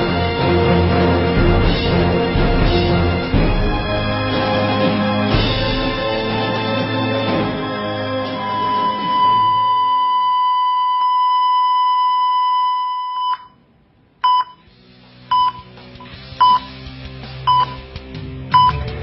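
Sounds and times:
music: 0.0s - 9.7s, 14.6s - 19.0s
heart monitor flatline tone: 8.4s - 13.6s, 14.2s - 14.6s, 15.3s - 15.7s, 16.4s - 16.7s, 18.6s - 18.9s
heart monitor short beeps: 14.2s - 14.6s, 15.3s - 15.7s, 16.4s - 16.7s, 17.5s - 17.8s, 18.6s - 18.9s.

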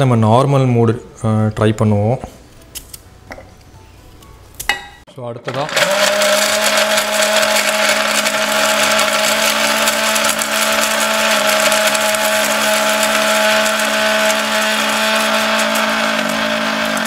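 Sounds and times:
mixer grinder running: 5.5s - 17.0s.

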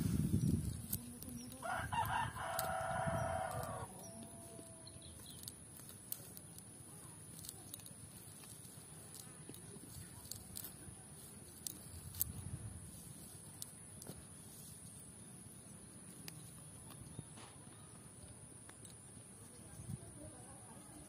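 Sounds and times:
rooster crowing: 1.6s - 5.0s.

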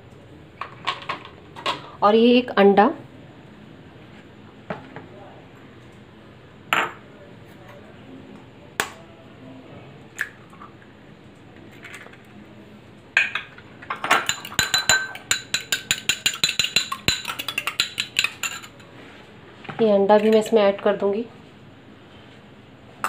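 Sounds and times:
egg knocking on glass bowl: 13.2s - 18.7s
fork clinking on glass: 14.1s - 18.8s.

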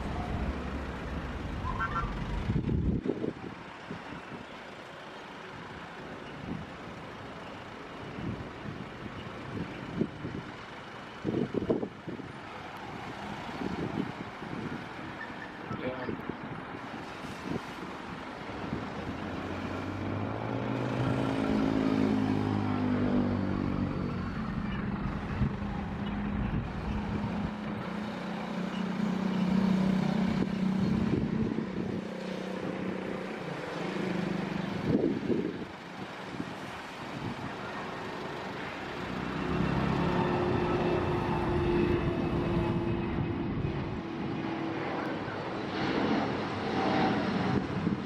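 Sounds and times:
jet engines rumbling with whine: 0.0s - 48.0s
motor vehicle passing: 18.5s - 48.0s.

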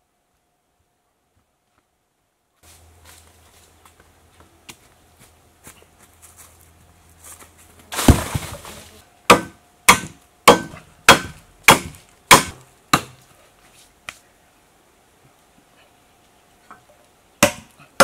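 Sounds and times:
knife chopping into wood: 9.3s - 13.2s, 17.4s - 18.0s.

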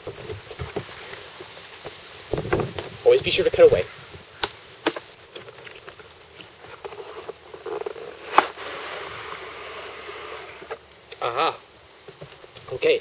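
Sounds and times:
cardboard rubbing and rustling: 4.9s - 10.8s.

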